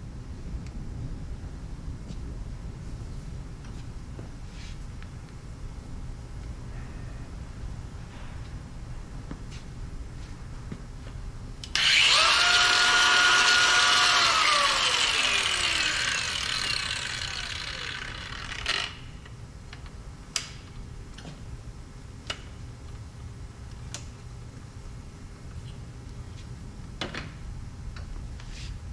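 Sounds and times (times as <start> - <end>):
angle grinder whine: 11.7 - 19.3.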